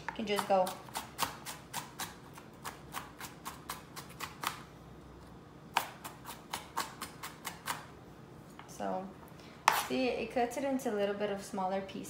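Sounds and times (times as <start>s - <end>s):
knife chopping on cutting board: 0.1s - 4.6s, 5.7s - 7.9s, 9.6s - 9.9s.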